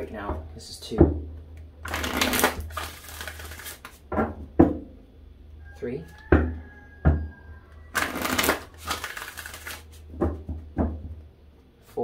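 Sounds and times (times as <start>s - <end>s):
cards rustling: 1.8s - 4.1s, 7.9s - 10.0s.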